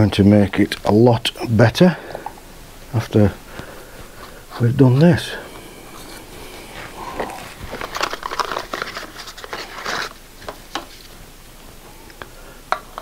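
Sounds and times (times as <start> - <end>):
gloved hands rustling: 2.4 - 11.8.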